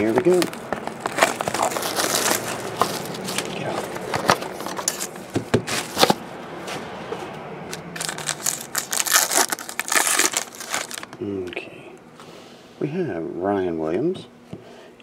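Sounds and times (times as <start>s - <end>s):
foil wrapper crinkling and tearing: 0.0s - 5.2s, 7.7s - 11.2s.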